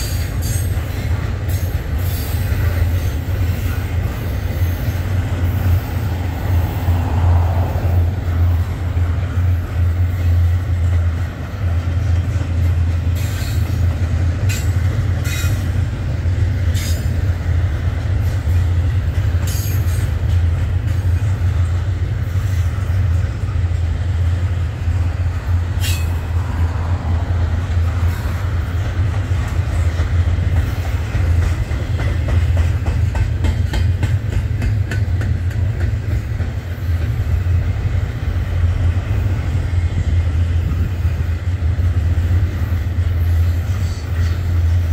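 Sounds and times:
freight train rumbling past: 0.0s - 44.9s
sharp clanks and squeals: 14.5s - 15.7s, 25.8s - 26.2s.

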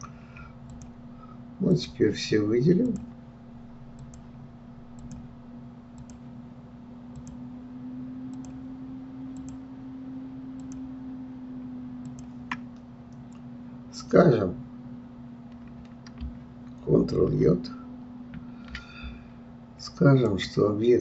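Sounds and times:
steady low hum: 0.0s - 21.0s
computer mouse clicking: 0.7s - 1.0s, 4.0s - 4.3s, 5.0s - 5.3s, 5.9s - 6.2s, 7.1s - 7.4s, 9.4s - 9.6s, 10.6s - 10.8s, 12.0s - 13.4s.

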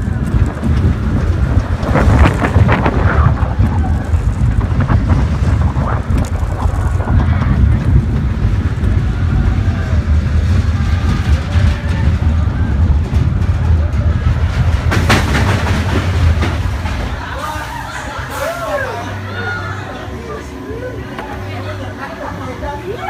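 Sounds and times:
wind buffeting microphone: 0.0s - 17.3s
roller coaster train rumbling: 0.0s - 23.0s.

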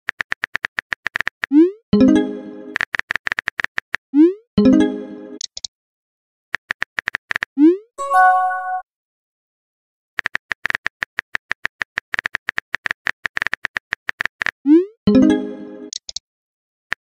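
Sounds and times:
message chime: 2.0s - 2.8s, 4.6s - 5.4s, 8.0s - 8.8s, 15.1s - 15.9s.

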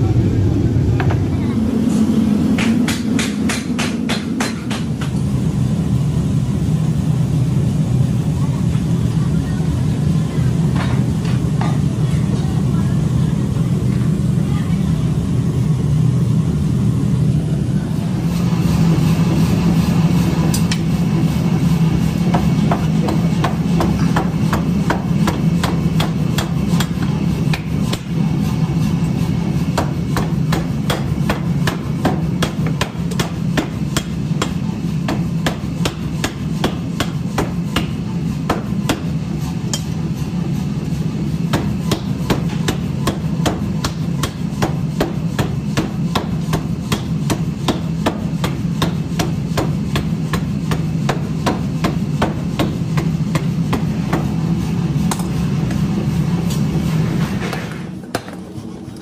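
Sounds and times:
steady low hum: 0.0s - 59.0s
power hammer striking iron: 2.6s - 5.3s, 20.4s - 20.9s, 22.2s - 28.2s, 29.7s - 40.1s, 41.4s - 54.4s.

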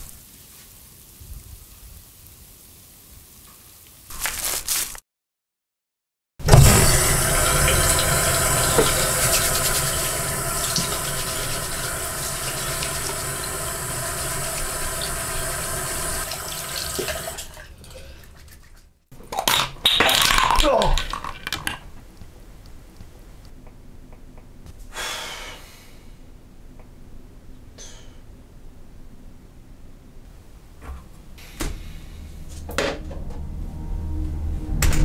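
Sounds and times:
tap running into sink: 6.5s - 13.5s.

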